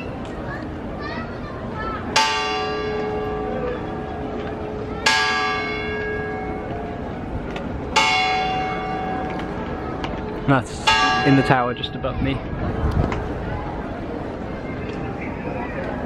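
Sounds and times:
large church bell ringing: 2.0s - 14.4s.

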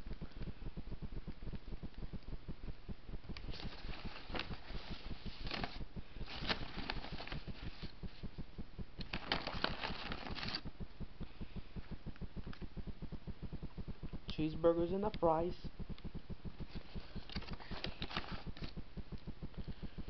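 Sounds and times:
paper bag crinkling: 9.1s - 10.6s, 17.2s - 18.7s.

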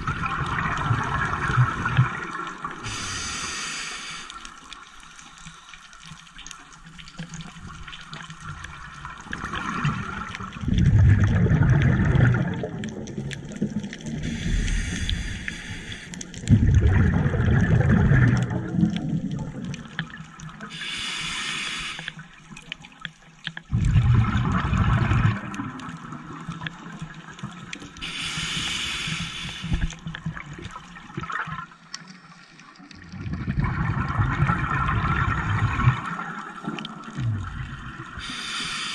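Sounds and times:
exhaust bubbles underwater: 0.0s - 3.6s, 7.5s - 15.3s, 16.2s - 20.9s, 23.6s - 31.9s, 32.8s - 38.6s
regulator inhale hiss: 2.8s - 6.0s, 14.2s - 16.4s, 20.7s - 22.2s, 28.0s - 30.0s, 38.2s - 38.9s.

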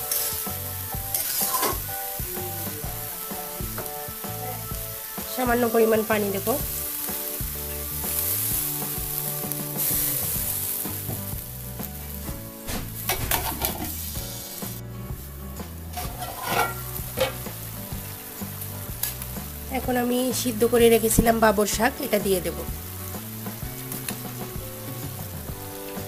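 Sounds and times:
vegetables sizzling: 0.0s - 26.0s
water hissing in hot wok: 0.0s - 26.0s
metal lid and spatula clinks: 16.0s - 17.4s.

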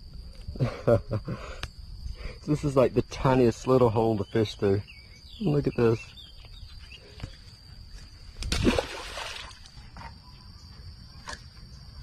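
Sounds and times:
fish splashing into water: 8.5s - 9.7s.

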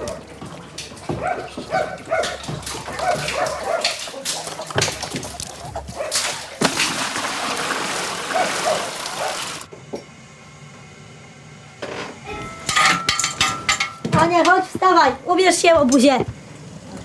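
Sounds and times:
water running and splashing: 0.0s - 9.7s.

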